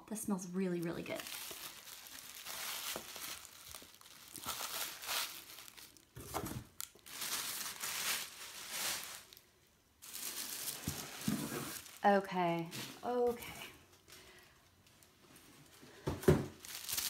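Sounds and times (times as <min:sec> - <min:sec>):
tissue paper crinkling: 0:00.6 - 0:13.3, 0:16.6 - 0:17.0.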